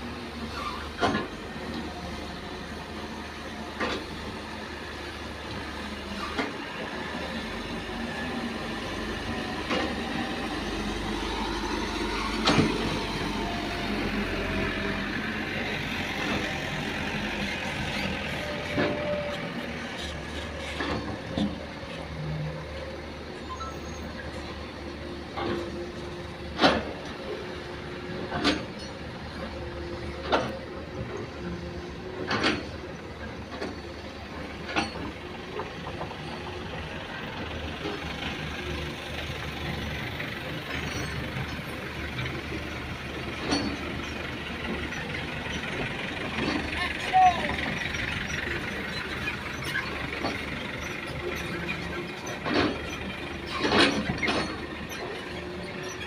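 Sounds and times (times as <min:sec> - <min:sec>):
excavator diesel engine running: 0:00.0 - 0:56.0
sharp knocks and clanks: 0:12.4 - 0:13.0, 0:26.5 - 0:27.2, 0:32.2 - 0:32.9, 0:43.2 - 0:46.8, 0:50.1 - 0:55.4.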